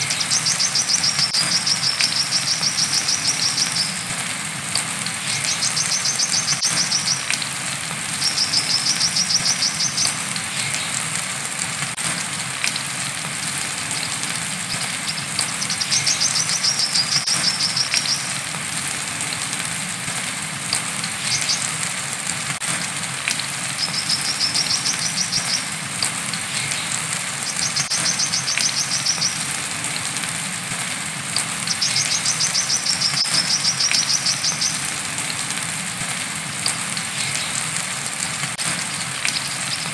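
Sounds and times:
bird high-pitched trills: 0.0s - 4.1s, 5.2s - 7.3s, 8.2s - 10.7s, 13.9s - 18.4s, 23.8s - 25.7s, 26.6s - 29.4s, 31.6s - 34.9s
rain hiss: 0.0s - 39.9s.

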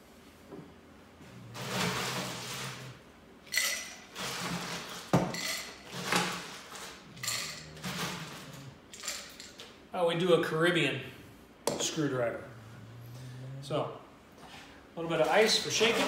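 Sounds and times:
glassware and bar tools clinking: 3.5s - 4.1s, 7.1s - 9.6s.

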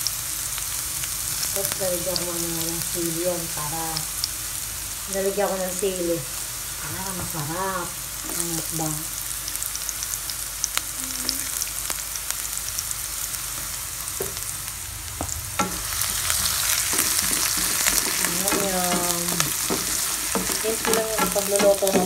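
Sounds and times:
onion sizzling in hot oil: 0.0s - 22.0s
spatula scraping pan: 15.6s - 22.0s.

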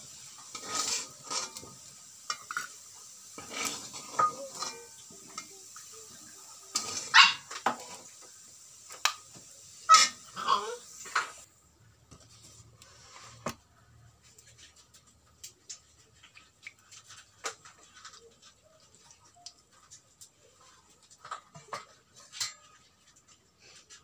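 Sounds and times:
clicks and taps at a wok: 8.9s - 9.4s.

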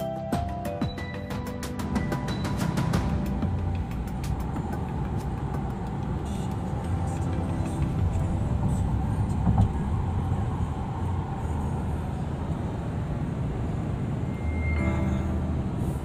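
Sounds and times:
car cabin road noise: 0.2s - 16.0s
short high beep: 14.3s - 15.5s.

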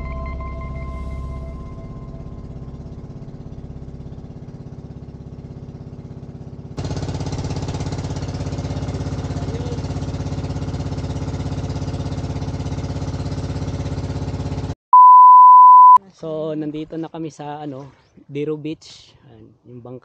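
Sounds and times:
motor boat engine pulsing: 0.0s - 14.7s.

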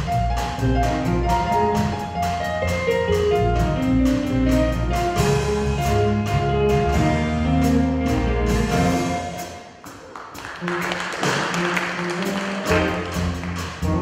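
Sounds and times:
bass guitar line: 0.0s - 9.8s, 11.2s - 14.0s
fast keyboard playing: 0.0s - 14.0s
steady beat: 0.0s - 14.0s.

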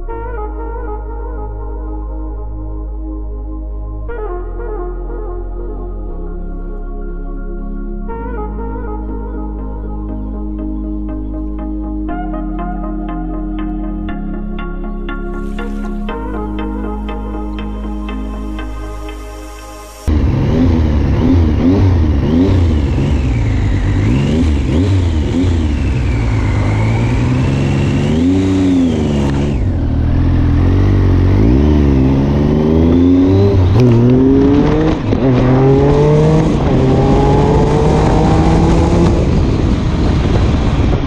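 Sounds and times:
motorcycle engine revving: 20.1s - 41.0s.

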